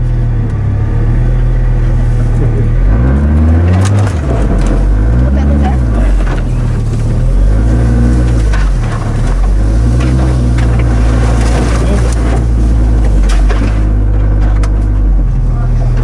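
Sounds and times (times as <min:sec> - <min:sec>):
off-road vehicle engine revving: 0:00.0 - 0:16.0
knocks and scrapes: 0:01.9 - 0:16.0.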